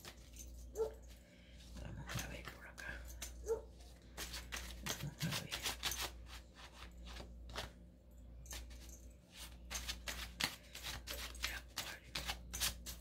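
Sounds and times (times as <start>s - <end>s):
cards being shuffled: 3.8s - 7.8s, 8.5s - 13.0s.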